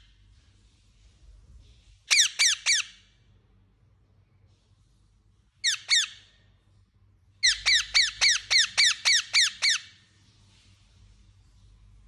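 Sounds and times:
parakeet calling: 2.1 - 3.1, 5.6 - 6.4, 7.4 - 10.0.

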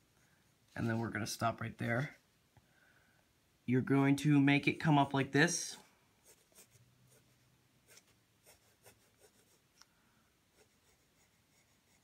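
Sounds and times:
pencil scratching on paper: 6.2 - 9.6, 10.5 - 12.0.

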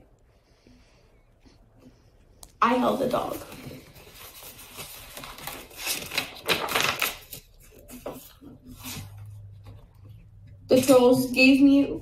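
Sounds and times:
paper pages rustling: 2.8 - 10.1.

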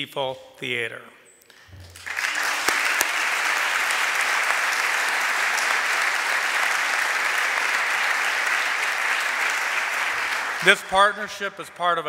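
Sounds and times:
audience applauding: 1.8 - 11.3.

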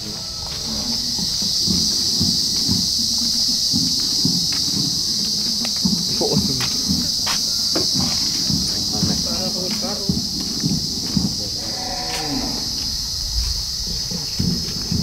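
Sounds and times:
insects chorus: 0.0 - 15.0
low scuffs: 0.0 - 15.0.

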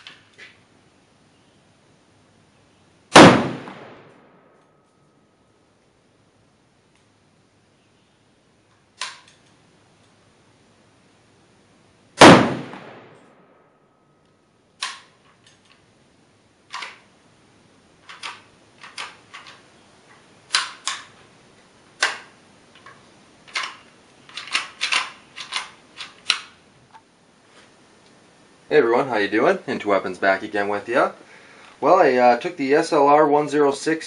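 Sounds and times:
echoing gunshot: 3.1 - 4.6, 12.2 - 13.7.

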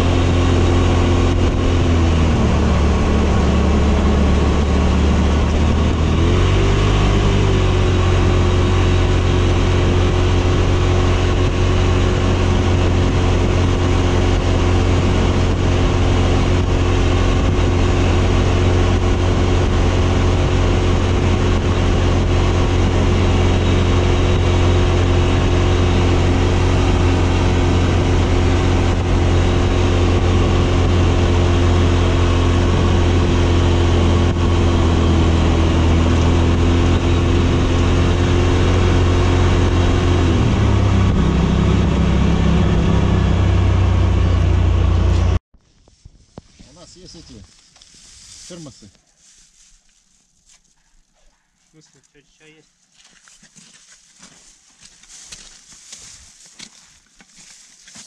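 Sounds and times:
buggy engine running: 0.0 - 45.4, 50.6 - 58.0.

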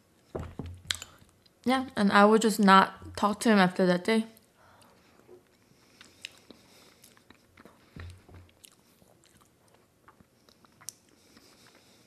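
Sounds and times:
mouth chewing wet smacks: 5.4 - 11.9.

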